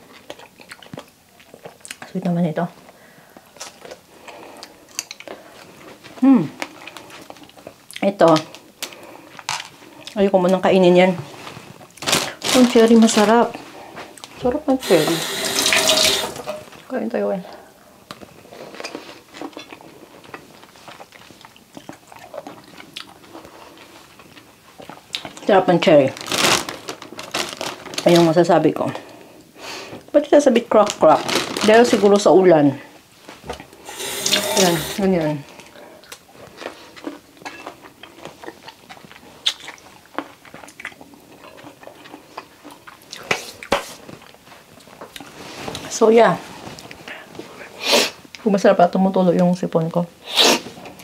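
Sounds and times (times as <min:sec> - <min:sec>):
person chewing cherries: 0:00.0 - 0:02.1, 0:02.8 - 0:10.2, 0:18.1 - 0:25.5, 0:33.6 - 0:45.3.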